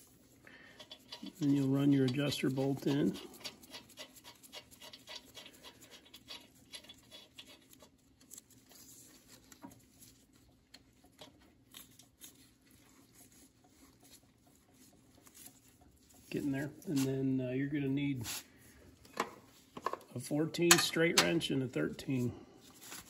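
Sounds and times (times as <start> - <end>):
faint clicks and rustling: 0.0 - 17.4.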